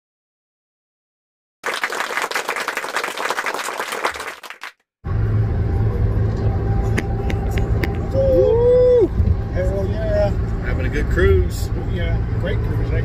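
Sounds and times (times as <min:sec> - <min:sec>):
applause: 0:01.6 - 0:04.8
road and engine noise inside cab: 0:05.0 - 0:13.0.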